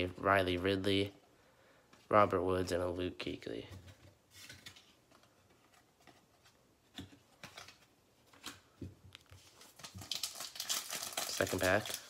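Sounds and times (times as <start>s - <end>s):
foil pack crinkling: 9.4s - 12.0s.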